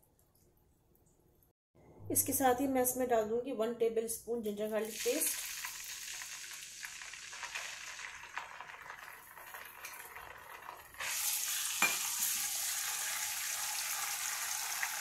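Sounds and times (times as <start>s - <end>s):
oil sizzling in frying pan: 4.8s - 15.0s.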